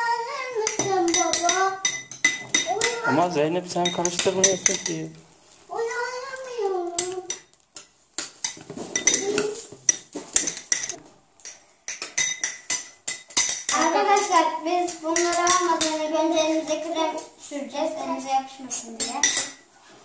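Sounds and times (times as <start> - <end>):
spoons clinking on glass bowls: 0.6 - 3.1, 3.7 - 5.2, 6.9 - 16.9, 18.7 - 19.6.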